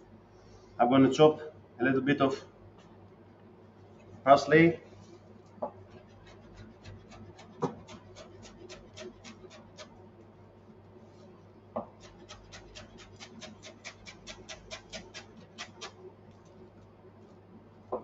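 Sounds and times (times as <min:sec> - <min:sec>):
knife chopping on cutting board: 0:05.9 - 0:09.9, 0:11.8 - 0:16.0.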